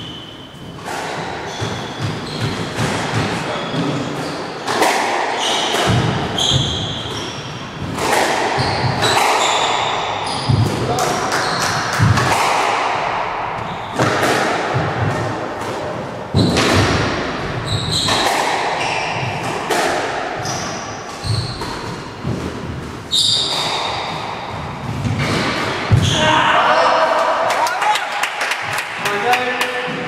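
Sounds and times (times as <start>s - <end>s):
shoes squeaking on wooden floor: 0.0s - 4.8s, 5.4s - 11.8s, 17.4s - 19.6s, 20.4s - 26.4s
squash ball hitting rackets and walls: 0.0s - 26.6s.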